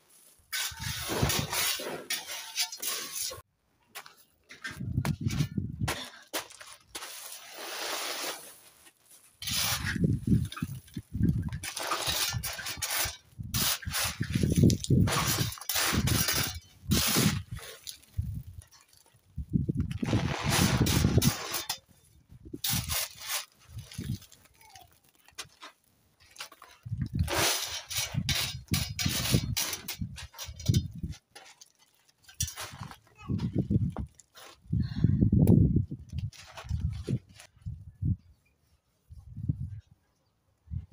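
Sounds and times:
trowel scooping gravel: 0:00.0 - 0:03.5, 0:05.9 - 0:19.2, 0:19.9 - 0:33.1.

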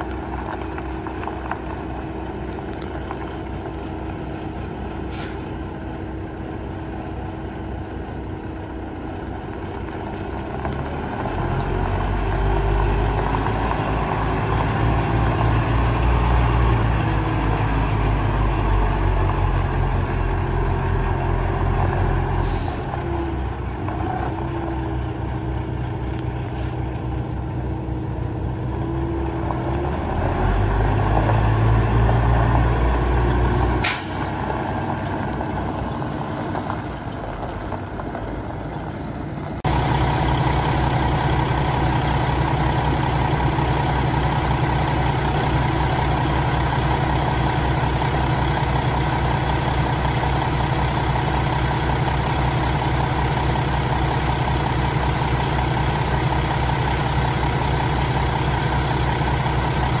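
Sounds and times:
diesel engine idling: 0:00.0 - 1:00.0
diesel truck engine: 0:00.0 - 1:00.0
air brake hiss: 0:04.6 - 0:05.5, 0:22.4 - 0:22.9, 0:26.5 - 0:26.8, 0:33.4 - 0:35.0.

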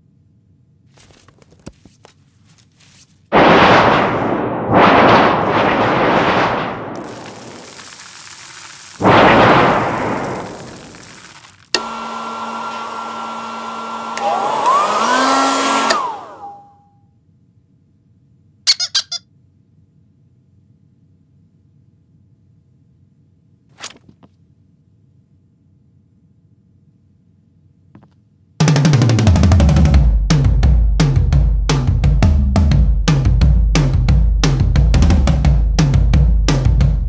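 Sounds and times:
loud noisy blasts: 0:03.3 - 0:16.7
hair dryer running: 0:10.8 - 0:16.6.

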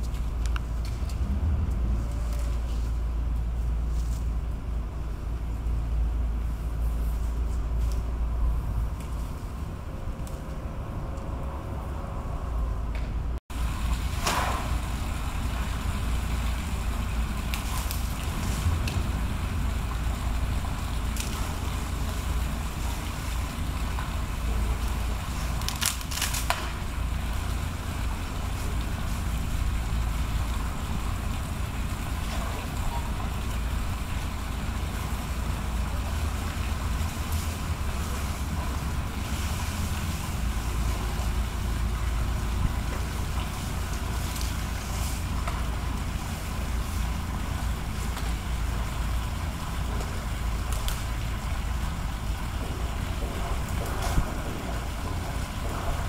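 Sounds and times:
low outdoor rumble: 0:00.0 - 0:56.0
sharp branch cracks: 0:14.1 - 0:14.8, 0:17.5 - 0:19.0, 0:21.1 - 0:22.2, 0:24.8 - 0:27.6, 0:43.4 - 0:45.7, 0:50.0 - 0:51.2
elephants crunching branches: 0:17.4 - 0:19.1, 0:21.1 - 0:23.4, 0:24.1 - 0:27.6.

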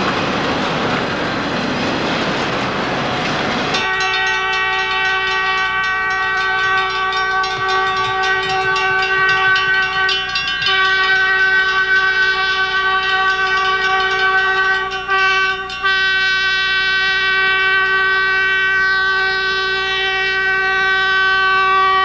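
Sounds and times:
freight cars rolling: 0:00.0 - 0:16.0
locomotive air horn chord: 0:03.7 - 0:22.0.

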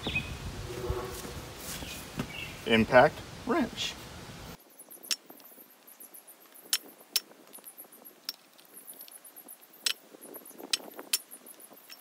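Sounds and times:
tools clinking on metal: 0:10.7 - 0:12.0.

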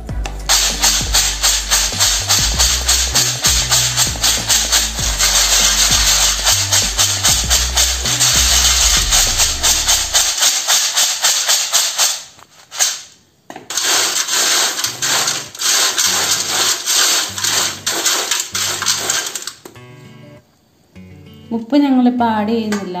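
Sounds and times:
low bass background music: 0:00.0 - 0:10.2
fried chips rattling in a colander: 0:00.5 - 0:13.0, 0:13.7 - 0:19.6.

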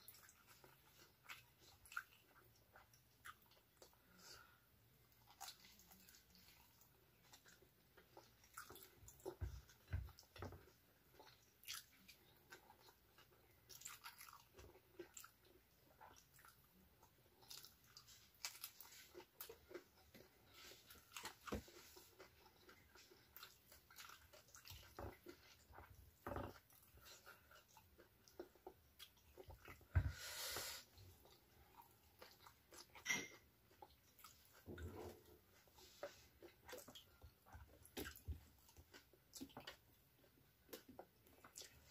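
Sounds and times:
person chewing and crunching food: 0:00.0 - 0:41.9.

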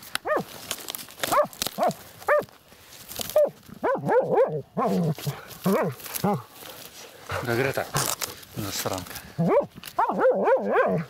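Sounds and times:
dogs yelping and barking: 0:00.2 - 0:00.5, 0:01.3 - 0:02.5, 0:03.3 - 0:06.4, 0:09.4 - 0:11.0.

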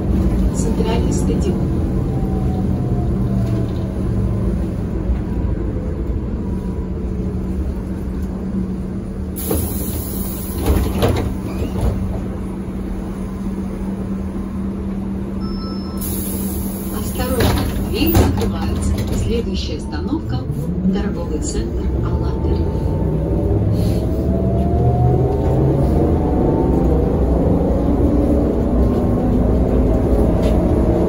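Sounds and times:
air hiss: 0:16.0 - 0:17.0
doors clunking open: 0:17.2 - 0:19.6.

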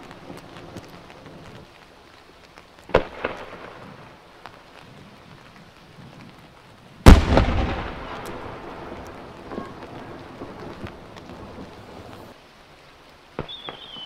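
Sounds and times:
firework mortar launch thump: 0:07.0 - 0:08.4
firework bursting bang: 0:07.0 - 0:08.9.

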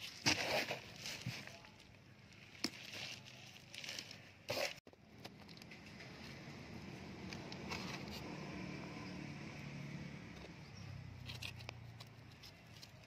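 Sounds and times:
crumbly rustle: 0:00.0 - 0:04.8
manure crackling onto soil: 0:00.0 - 0:04.8.

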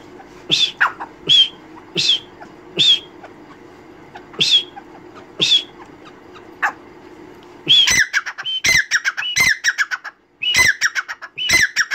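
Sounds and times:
francolin calling: 0:00.5 - 0:06.8, 0:07.6 - 0:11.9.

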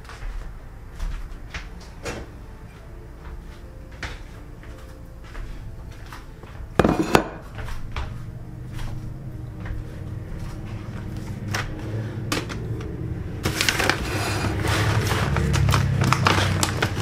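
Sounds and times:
low steady hum: 0:00.0 - 0:16.9
scraping noise: 0:13.8 - 0:15.6.

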